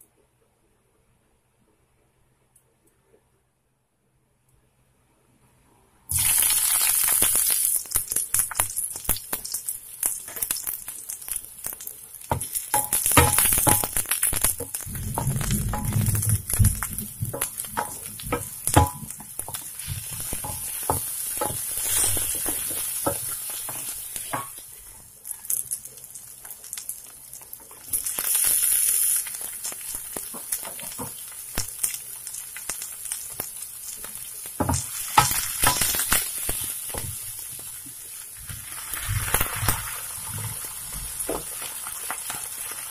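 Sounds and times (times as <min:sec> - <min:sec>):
onions sizzling in hot oil: 0:06.1 - 0:42.9
spatula scraping a pan: 0:15.1 - 0:24.6.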